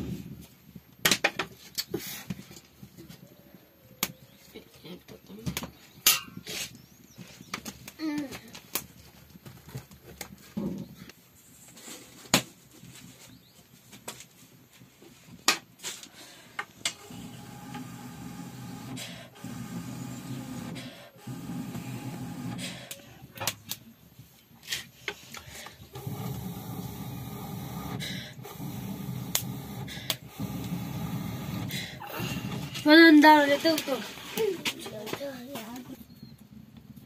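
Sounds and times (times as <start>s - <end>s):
breath blown through blowpipe: 25.9s - 32.8s.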